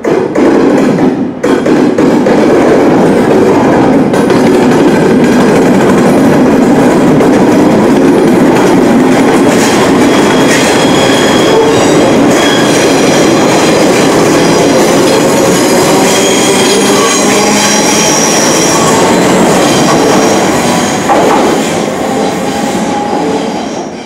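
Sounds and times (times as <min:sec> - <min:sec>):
train wheels rumbling past: 0:00.0 - 0:24.0
high-pitched squealing: 0:09.6 - 0:24.0.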